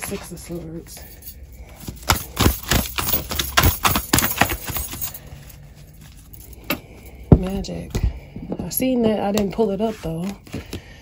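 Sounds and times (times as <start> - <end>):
cards being shuffled: 9.0 - 11.0.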